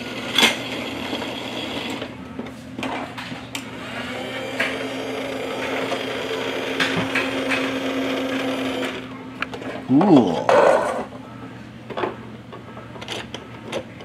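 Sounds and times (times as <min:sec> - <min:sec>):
small toy motor whirring: 0:03.8 - 0:09.1.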